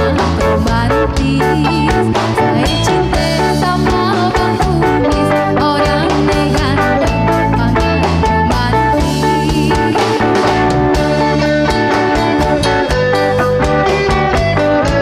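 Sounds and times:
woman singing: 0:00.0 - 0:10.6
drum kit beat: 0:00.0 - 0:15.0
electric guitar: 0:00.0 - 0:15.0.

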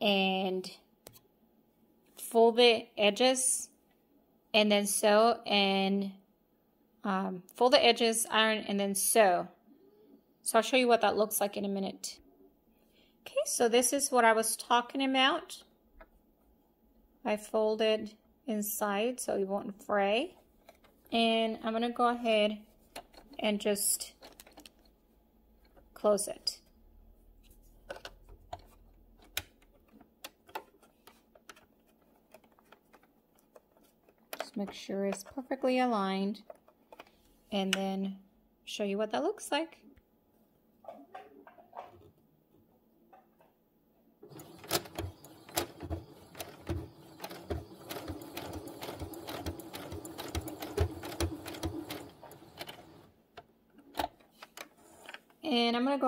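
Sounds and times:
sewing machine stitching: 0:44.3 - 0:53.1.

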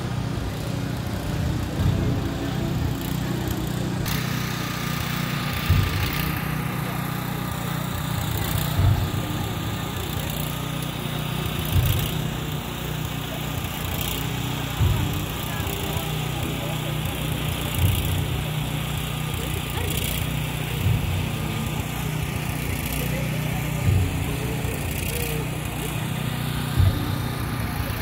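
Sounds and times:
small petrol engine drone: 0:00.0 - 0:28.0
deep drum thump: 0:05.6 - 0:06.2.

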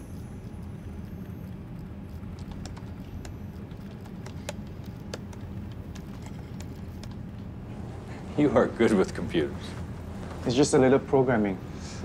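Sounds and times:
engine room machinery hum: 0:00.0 - 0:12.0
computer keyboard key clicks: 0:02.3 - 0:07.2.

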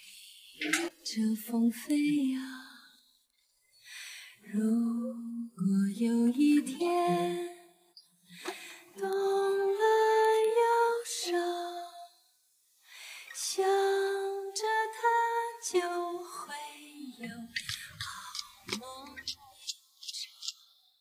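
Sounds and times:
woman singing: 0:00.0 - 0:02.9, 0:04.4 - 0:07.8, 0:09.0 - 0:12.1, 0:13.3 - 0:19.2.

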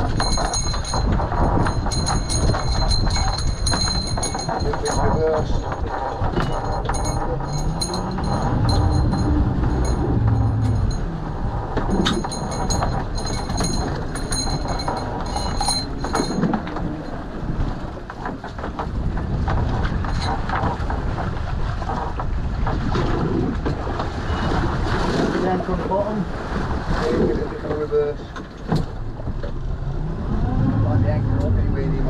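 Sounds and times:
metallic clinks and squeaks: 0:00.0 - 0:11.2, 0:11.9 - 0:17.2, 0:20.0 - 0:20.4
wind on microphone: 0:00.0 - 0:28.0
motor boat rumbling: 0:00.0 - 0:32.0
water slapping against hull: 0:00.0 - 0:32.0.

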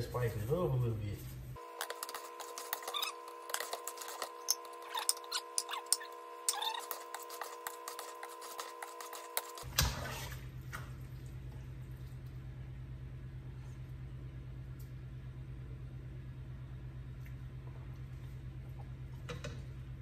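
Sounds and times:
steady hum: 0:00.0 - 0:09.8
metal spoon scraping pot: 0:01.6 - 0:10.3.

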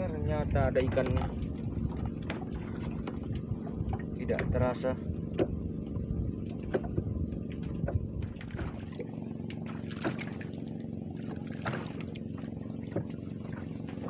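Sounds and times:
wind buffeting microphone: 0:00.0 - 0:08.9
boat motor hum: 0:00.0 - 0:14.0
waves slapping against boat hull: 0:00.0 - 0:14.0.

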